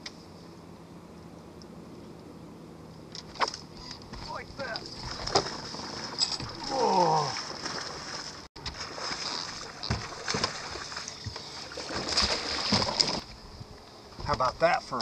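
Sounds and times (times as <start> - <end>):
fish splashing at the surface: 5.0 - 13.2
short falling cry: 6.6 - 7.4.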